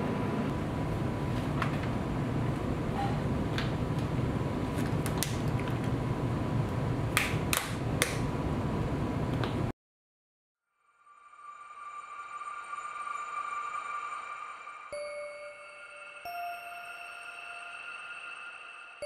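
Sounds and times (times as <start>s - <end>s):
room hum: 0.0s - 9.7s.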